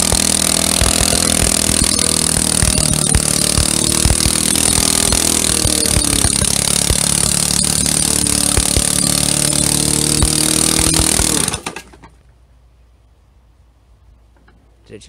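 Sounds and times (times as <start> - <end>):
lawnmower engine running loud: 0.0 - 12.0.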